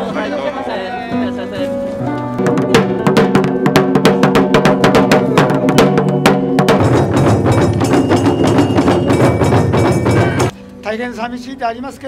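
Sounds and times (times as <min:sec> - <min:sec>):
drums struck with sticks: 0:02.4 - 0:10.6
steady held tone: 0:03.4 - 0:10.8.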